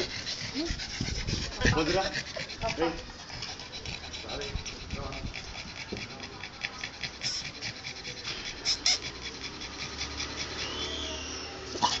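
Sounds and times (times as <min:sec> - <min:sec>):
dog panting: 0:00.0 - 0:12.0.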